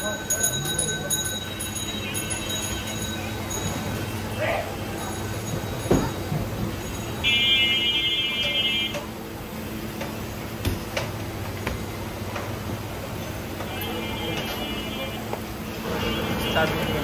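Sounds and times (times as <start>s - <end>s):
clinks and knocks: 5.0s - 7.2s.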